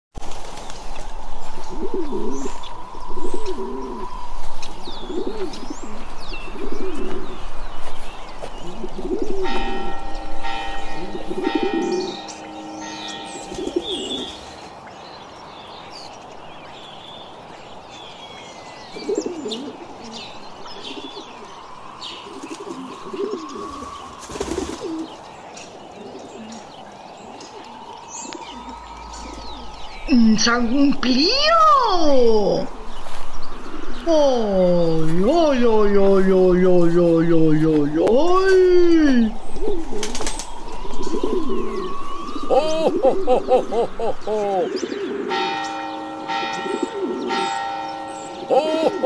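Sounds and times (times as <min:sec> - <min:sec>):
small birds chirping: 0:00.2 - 0:49.0
doves cooing: 0:01.4 - 0:14.6, 0:18.9 - 0:49.0
multi-pitch ringing tone: 0:09.4 - 0:14.4.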